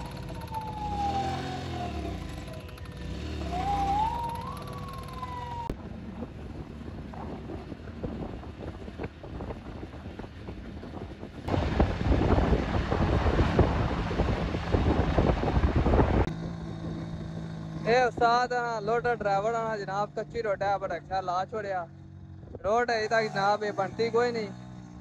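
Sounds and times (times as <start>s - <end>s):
vehicle siren wailing: 0.0s - 5.8s
wind buffeting microphone: 0.0s - 17.6s
car road noise: 0.0s - 25.0s.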